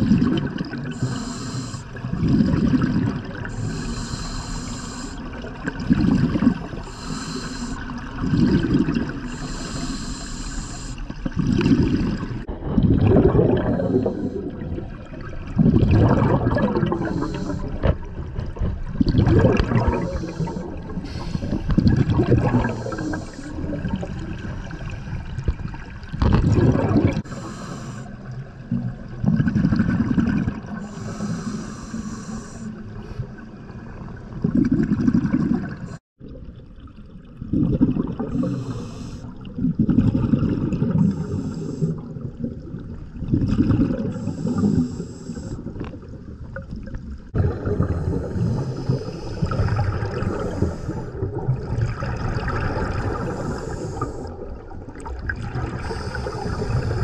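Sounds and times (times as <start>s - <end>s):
exhaled bubbles bursting: 0.0s - 1.3s, 1.9s - 3.7s, 5.1s - 9.6s, 11.1s - 27.3s, 28.6s - 30.9s, 33.7s - 44.9s, 45.6s - 57.0s
regulator hissing inhalation: 1.0s - 2.0s, 3.5s - 5.3s, 6.8s - 8.0s, 9.3s - 11.1s, 16.8s - 17.8s, 19.9s - 21.7s, 22.6s - 23.6s, 27.3s - 28.2s, 30.8s - 32.8s, 38.3s - 39.3s, 41.1s - 42.0s, 44.1s - 45.7s, 53.3s - 54.3s, 55.8s - 57.0s.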